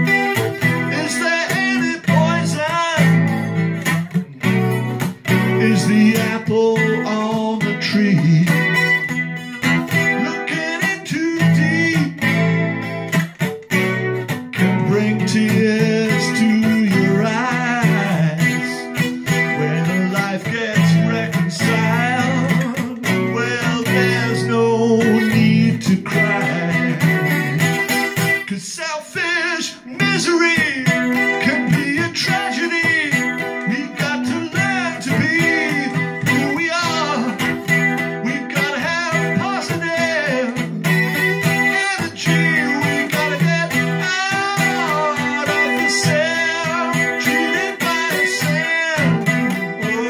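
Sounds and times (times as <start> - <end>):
man singing: 0.0 - 13.0, 14.6 - 27.8, 28.4 - 50.0
acoustic guitar strumming: 0.0 - 50.0.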